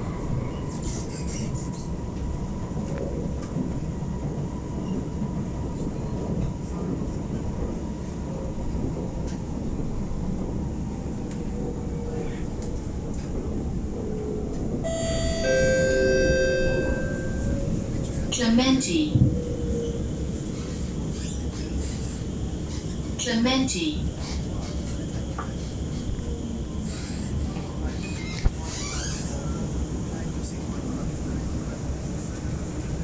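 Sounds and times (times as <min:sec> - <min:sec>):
metro train rolling rumble: 0:00.0 - 0:33.0
passing train: 0:00.0 - 0:33.0
multi-tone chime: 0:14.9 - 0:17.6.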